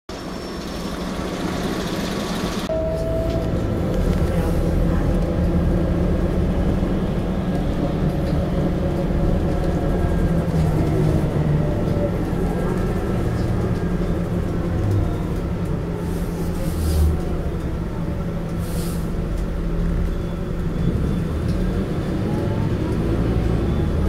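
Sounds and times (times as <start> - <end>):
bus engine running: 0.1 - 24.0
short beep: 2.7 - 3.5.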